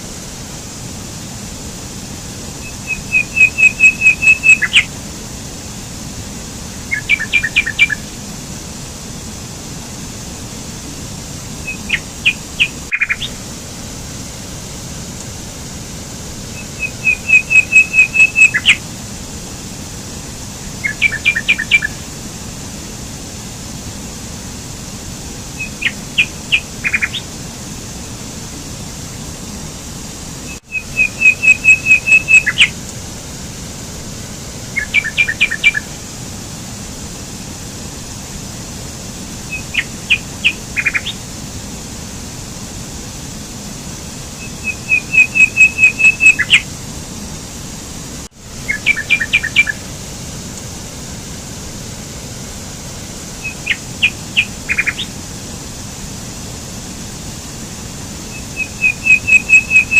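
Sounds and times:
mountain stream rushing: 0.0s - 59.9s
songbird chirping: 2.6s - 4.9s, 6.9s - 8.1s, 11.6s - 13.4s, 16.5s - 18.8s, 20.8s - 22.0s, 25.6s - 27.3s, 30.5s - 32.8s, 34.8s - 35.9s, 39.5s - 41.2s, 44.4s - 46.7s, 48.6s - 49.8s, 53.4s - 55.1s, 58.3s - 59.9s.

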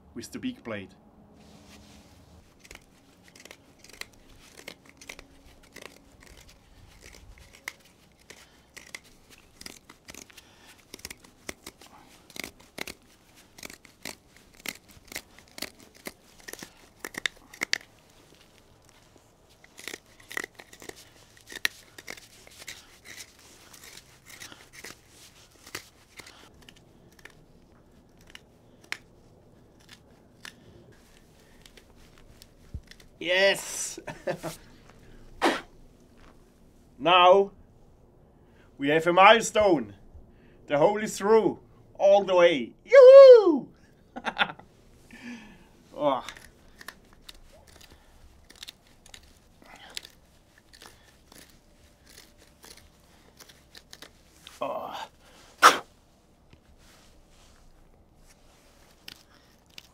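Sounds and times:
knife blade scraping wood: 2.4s - 27.4s, 29.7s - 33.2s, 46.2s - 54.6s, 55.6s - 55.9s.

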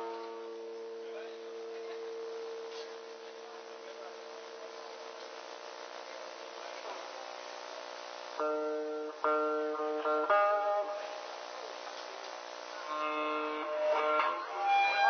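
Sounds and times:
held guitar note: 0.0s - 2.1s, 8.4s - 11.3s, 12.8s - 15.0s
electric guitar chords ringing: 0.0s - 2.6s, 8.4s - 11.8s, 12.7s - 15.0s
steady tape hum: 0.0s - 15.0s.

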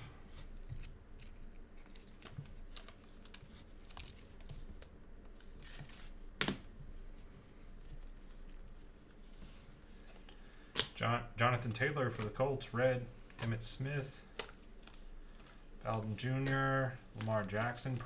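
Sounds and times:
trading cards clicking and rustling: 0.6s - 6.6s, 13.3s - 18.0s.

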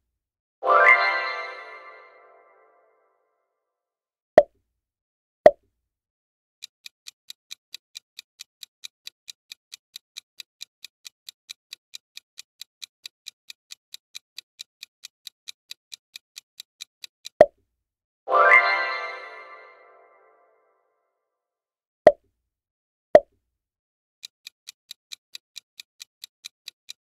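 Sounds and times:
clock ticking timer: 6.6s - 17.5s, 24.2s - 27.0s.

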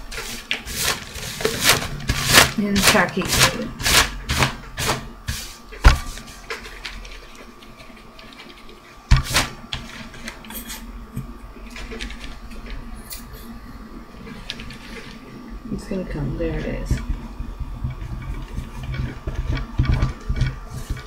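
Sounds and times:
faint steady hum: 0.0s - 21.0s
paper rustling and tapping: 17.8s - 21.0s.

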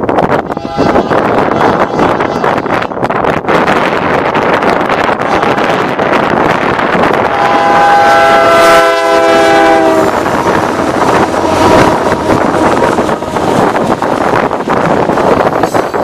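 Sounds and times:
train rumbling on rails: 0.0s - 16.0s
locomotive air horn chord: 0.5s - 2.8s, 7.3s - 13.2s.

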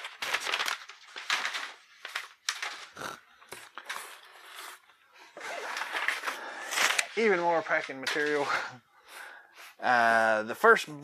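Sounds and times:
packing paper rustling: 0.0s - 8.8s.

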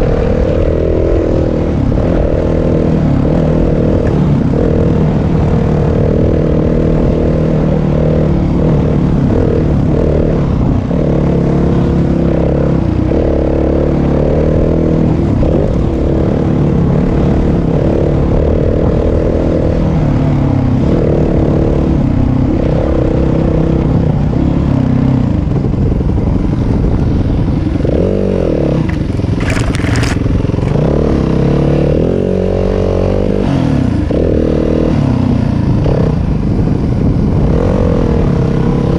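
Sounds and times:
dirt bike engine revving: 27.4s - 36.5s.

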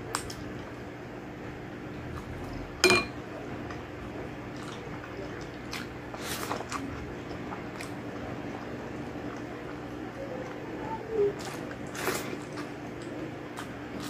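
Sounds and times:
spoon clinking on glass bowl: 2.8s - 3.2s
wet chewing and smacking: 4.4s - 10.7s.

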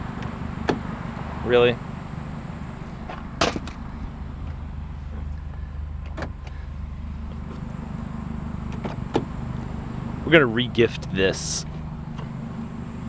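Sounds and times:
vehicle engine running: 0.0s - 13.0s
sharp knocks: 3.1s - 3.8s.

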